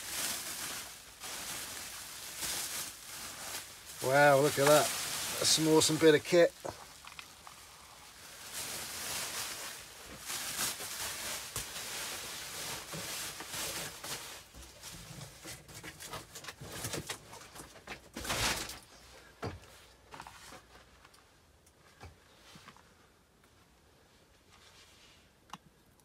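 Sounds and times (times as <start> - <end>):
plastic packaging rustling: 0.0 - 19.0.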